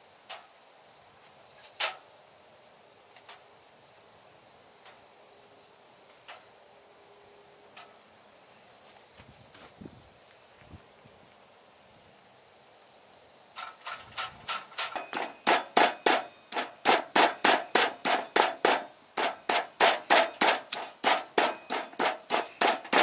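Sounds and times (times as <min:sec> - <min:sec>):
stone pestle pounding in mortar: 0:15.0 - 0:23.0.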